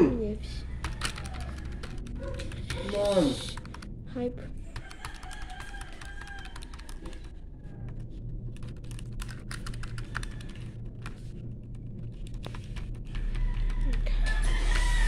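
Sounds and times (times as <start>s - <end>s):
calculator keys clicking: 0.8s - 3.9s, 4.8s - 7.4s, 8.5s - 14.0s.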